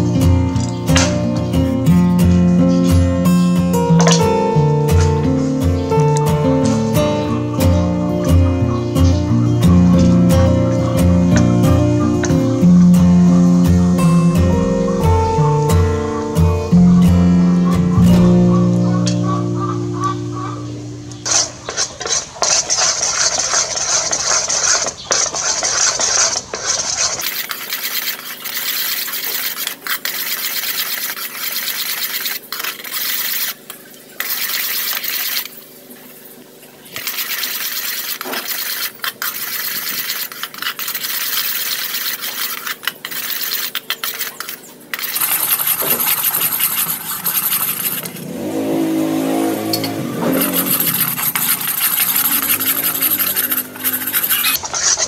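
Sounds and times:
metal spoon scraping a pot: 21.2s - 35.5s, 37.0s - 48.5s, 49.5s - 55.0s
sauce boiling and sizzling: 21.2s - 54.8s.

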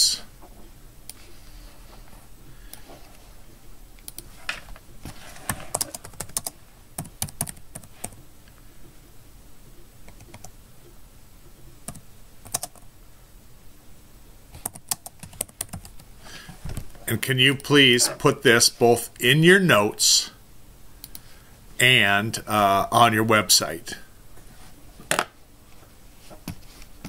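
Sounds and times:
typing on computer keyboard: 5.7s - 8.2s, 11.9s - 12.8s, 14.6s - 16.0s.

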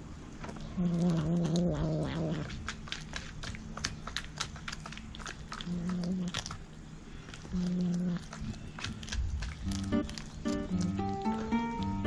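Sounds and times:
cat chewing with wet crunches: 0.5s - 12.0s
cat growling: 0.7s - 2.6s, 7.5s - 8.6s.

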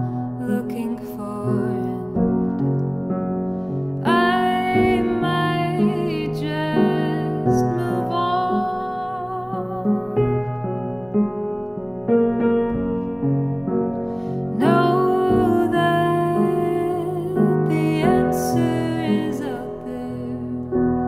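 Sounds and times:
piano playing slow chords: 0.0s - 21.0s
woman singing wordless notes: 0.4s - 2.5s, 4.0s - 10.8s, 14.5s - 20.7s.

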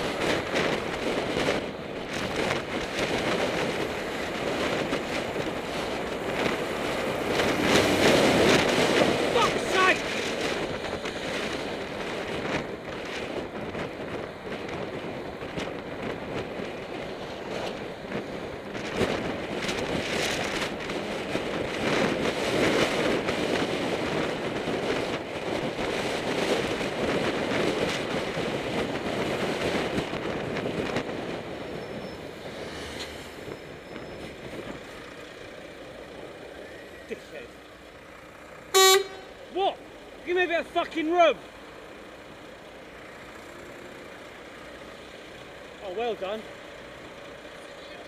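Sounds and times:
wind rushing over microphone: 0.0s - 37.5s
road and traffic noise: 0.0s - 48.0s.

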